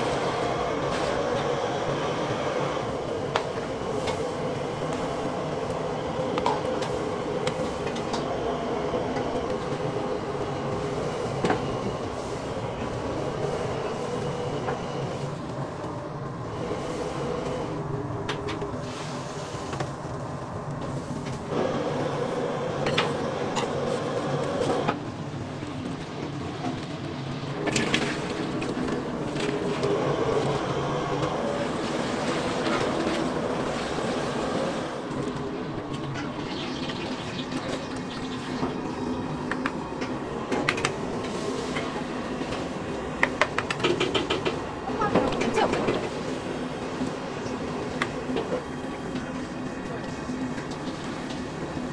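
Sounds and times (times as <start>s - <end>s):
water boiling: 27.2s - 51.9s.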